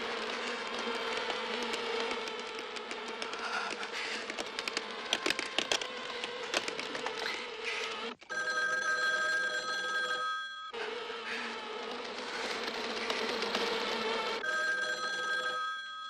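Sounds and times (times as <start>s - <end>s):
telephone bell ringing: 8.3s - 10.8s, 14.4s - 16.0s.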